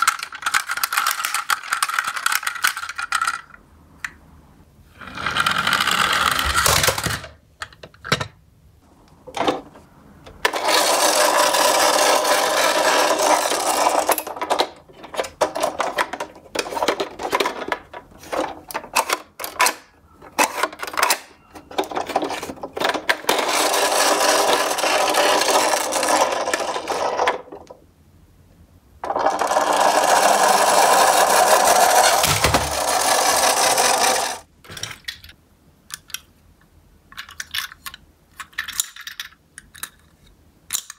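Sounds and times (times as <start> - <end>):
plastic toys clicking and rattling: 0.0 - 3.6, 5.2 - 8.2, 10.4 - 27.7, 29.1 - 36.2, 37.1 - 40.9
toy trucks whirring on wood: 4.9 - 7.3, 10.5 - 27.6, 29.0 - 34.5.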